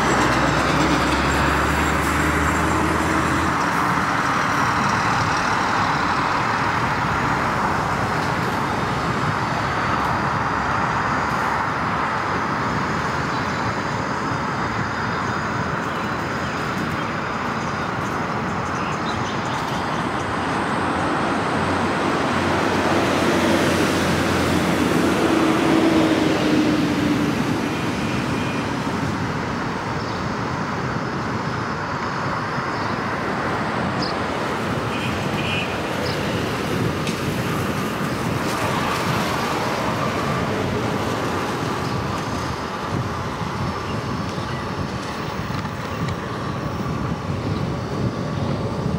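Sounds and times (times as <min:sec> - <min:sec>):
tyre and road noise: 0:00.0 - 0:48.9.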